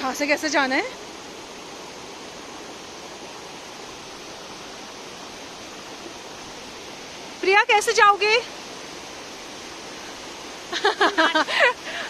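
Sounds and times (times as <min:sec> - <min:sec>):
stream water rushing: 0:00.0 - 0:12.0.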